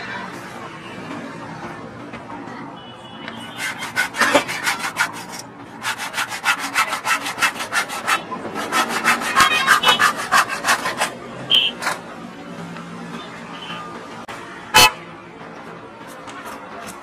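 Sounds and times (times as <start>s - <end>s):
hand saw cutting wood: 3.6s - 11.2s.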